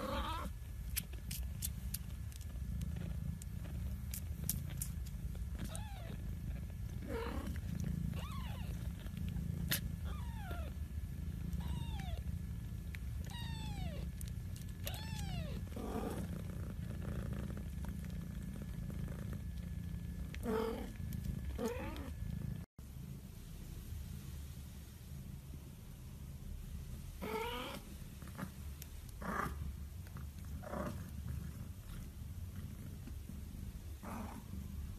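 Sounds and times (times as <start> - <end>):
steady low rumble: 0.0 - 27.2.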